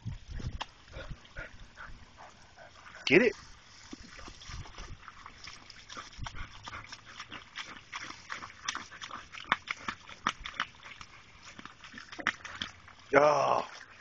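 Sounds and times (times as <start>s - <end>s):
dog snapping at hose water: 3.8s - 12.8s.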